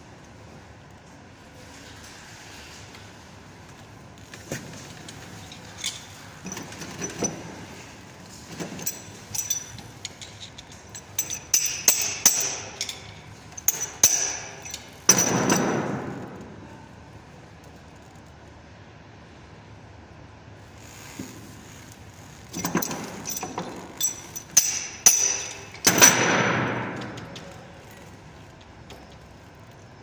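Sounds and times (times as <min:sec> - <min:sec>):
tools clinking on steel pipes: 0:08.6 - 0:16.0, 0:22.5 - 0:29.3.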